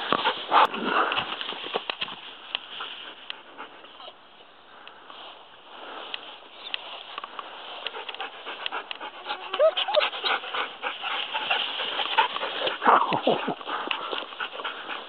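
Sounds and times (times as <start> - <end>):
grass rustling against microphone: 0.0 - 15.0
dog panting: 7.8 - 15.0.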